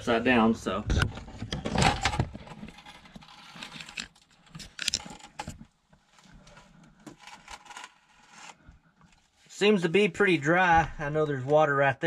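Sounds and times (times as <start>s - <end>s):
camera handling rustles and clicks: 1.5s - 5.7s.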